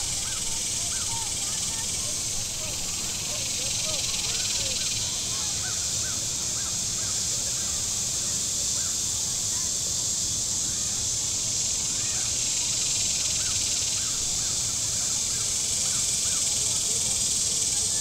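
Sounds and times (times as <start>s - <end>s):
faint bird calls: 0.0s - 2.9s
cicadas buzzing chorus: 0.0s - 18.0s.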